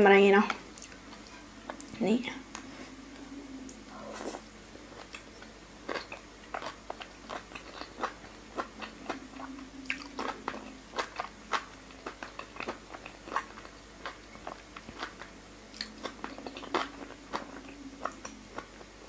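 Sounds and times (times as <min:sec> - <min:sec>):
wet smacking and chewing: 0:03.6 - 0:18.9.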